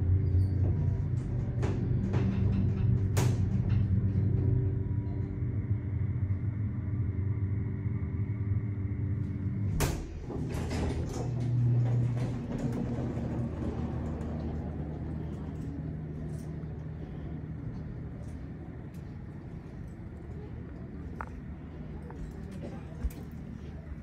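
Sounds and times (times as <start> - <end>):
elevator low hum: 0.0 - 24.0
sliding doors opening rattling: 0.1 - 5.0, 9.6 - 17.2
door motor whir: 7.0 - 16.8
elevator stopping click: 8.8 - 17.0.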